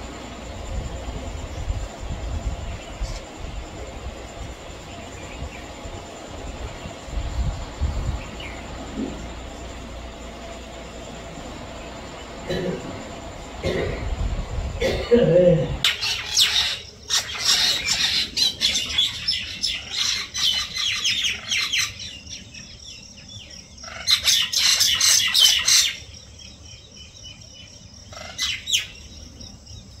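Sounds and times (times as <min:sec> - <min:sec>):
mynas chattering and squawking: 0:15.3 - 0:22.0.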